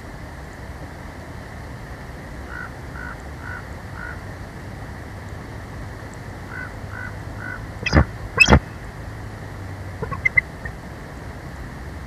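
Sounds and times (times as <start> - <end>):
short bird notes: 7.8 - 8.7, 10.0 - 10.8.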